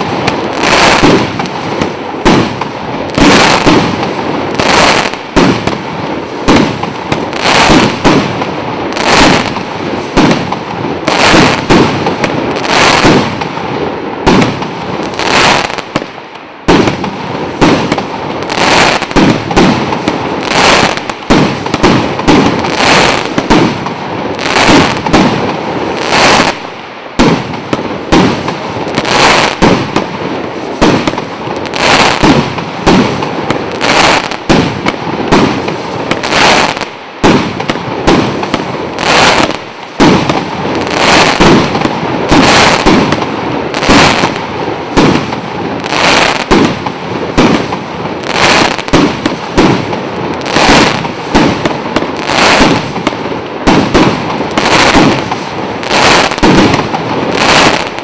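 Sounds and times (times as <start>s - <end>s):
fireworks shells bursting: 30.7s - 58.0s.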